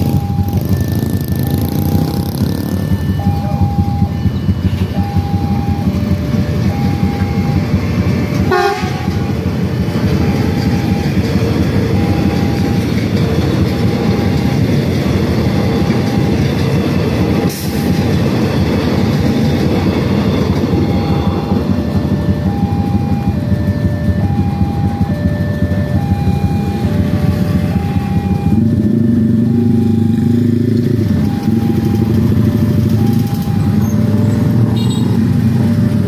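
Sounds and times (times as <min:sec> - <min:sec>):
train wheels rumbling on rails: 0:00.0 - 0:36.0
two-tone level-crossing alarm: 0:00.0 - 0:36.0
train horn blast: 0:08.5 - 0:09.3.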